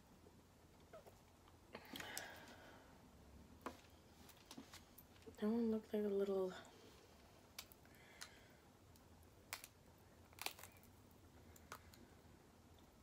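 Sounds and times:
crab shell cracking: 7.5 - 12.0.

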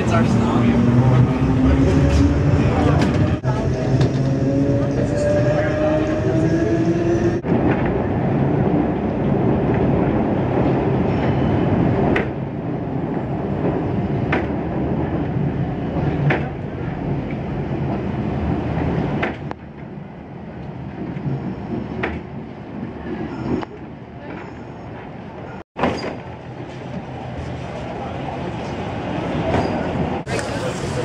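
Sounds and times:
streetcar rumbling on rails: 0.0 - 31.0
rail clicks: 13.2 - 25.2.

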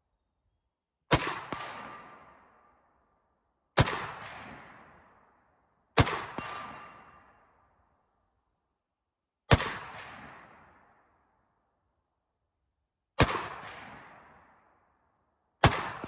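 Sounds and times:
rifle shots echoing: 1.1 - 2.4, 3.8 - 5.1, 6.0 - 7.4, 9.5 - 11.0, 13.2 - 14.5, 15.6 - 16.0.

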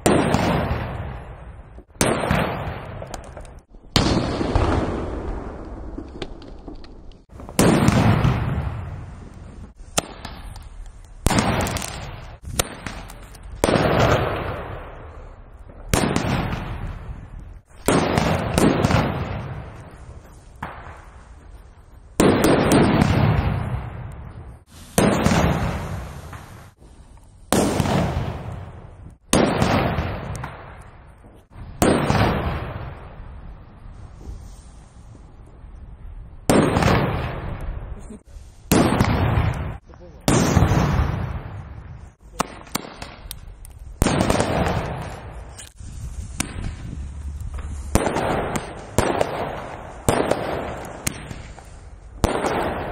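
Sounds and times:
firecracker bangs with echo: 0.0 - 6.1, 7.3 - 9.3, 9.9 - 10.6, 11.2 - 15.2, 15.8 - 21.2, 22.2 - 26.8, 27.5 - 31.0, 31.7 - 33.2, 36.5 - 37.8, 38.7 - 43.4, 44.0 - 45.6, 47.6 - 52.9.

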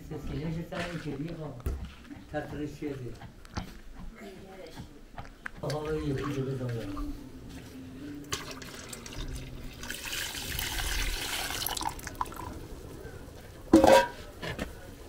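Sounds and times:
liquid pouring and splashing: 8.3 - 12.6.

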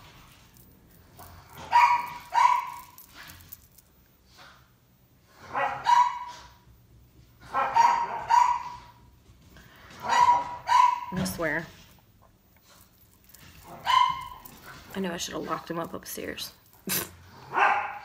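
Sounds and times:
dog barking: 1.6 - 3.0, 5.5 - 6.5, 7.5 - 9.0, 10.0 - 11.2, 13.7 - 14.5, 17.5 - 18.0.

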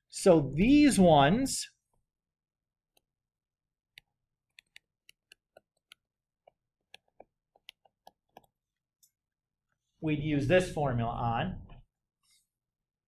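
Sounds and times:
stylus tapping on a touchscreen: 3.9 - 8.6.

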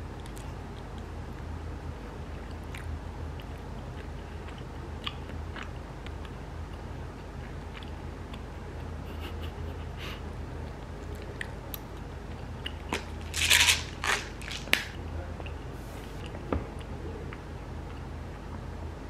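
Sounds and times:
steady low hum: 0.0 - 19.0
chewing rice cake: 2.4 - 8.9
crunching and rustling: 12.8 - 15.0.

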